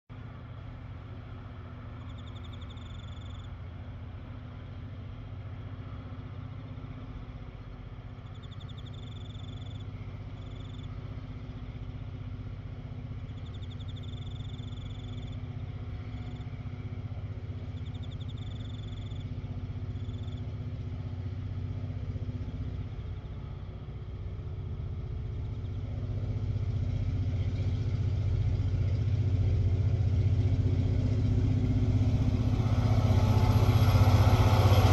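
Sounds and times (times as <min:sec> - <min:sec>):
diesel locomotive engine drone: 0:00.1 - 0:34.9
high trilling chirp: 0:02.0 - 0:03.5, 0:08.3 - 0:09.8.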